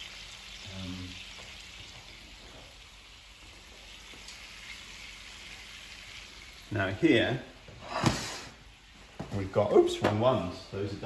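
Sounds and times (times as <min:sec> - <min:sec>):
bacon sizzling in a frying pan: 0:00.0 - 0:11.0.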